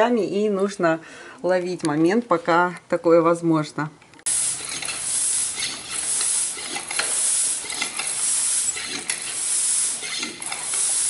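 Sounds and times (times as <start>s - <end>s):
hand pump air hiss: 4.3s - 11.0s.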